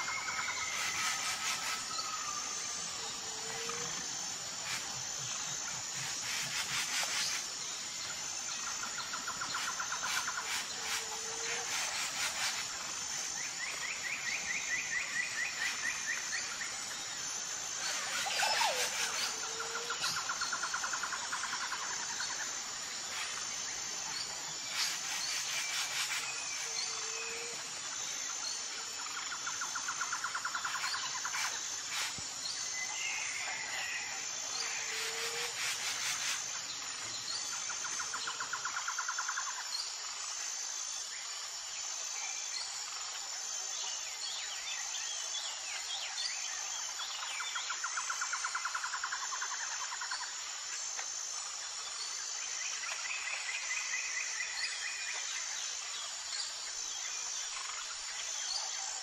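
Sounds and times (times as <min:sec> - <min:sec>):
high insect chirp: 0:00.0 - 0:59.0.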